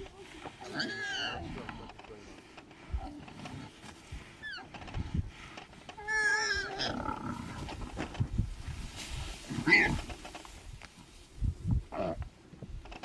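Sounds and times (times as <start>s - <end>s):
warthog squealing: 0.6s - 1.5s, 6.0s - 7.4s, 9.6s - 10.0s.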